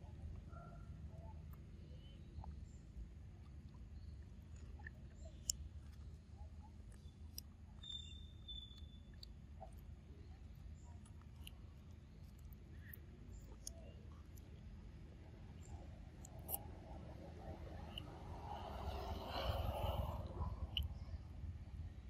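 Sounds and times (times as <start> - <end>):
low steady rumble: 0.0 - 22.0.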